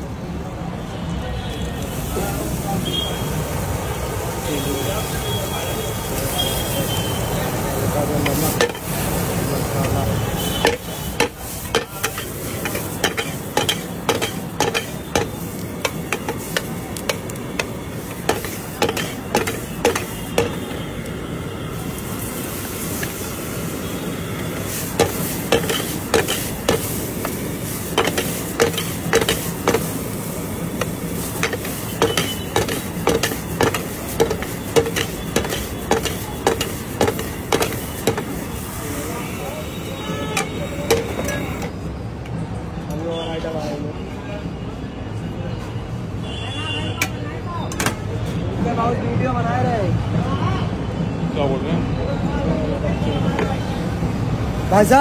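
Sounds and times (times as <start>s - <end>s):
vegetables sizzling in a pan: 1.7s - 41.7s
metal spatula clanking against pan: 10.6s - 17.7s, 18.3s - 20.6s, 25.0s - 27.0s, 27.9s - 29.9s, 30.8s - 38.3s.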